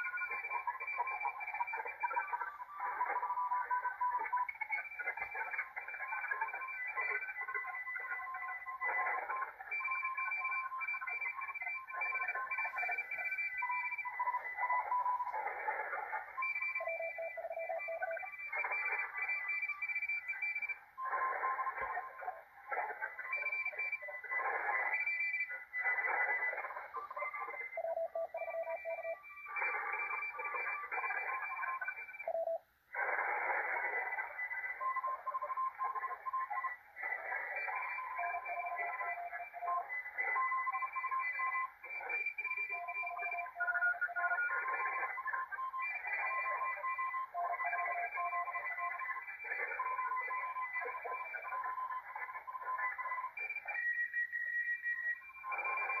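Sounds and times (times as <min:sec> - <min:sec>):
overlapping morse code tones: 0:00.0 - 0:56.0
radio band hiss: 0:20.7 - 0:28.0, 0:32.9 - 0:38.1.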